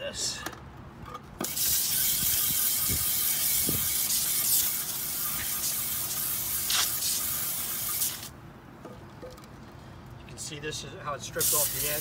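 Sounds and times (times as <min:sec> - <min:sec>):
hose spray hissing on wood: 0:01.4 - 0:08.3, 0:11.4 - 0:12.0.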